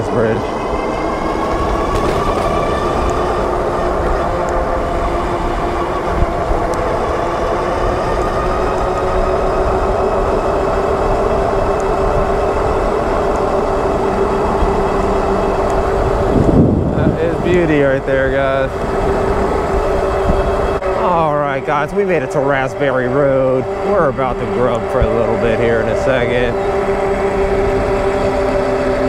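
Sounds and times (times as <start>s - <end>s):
electric bike motor whine: 0.0s - 29.0s
wind and road rumble: 0.0s - 29.0s.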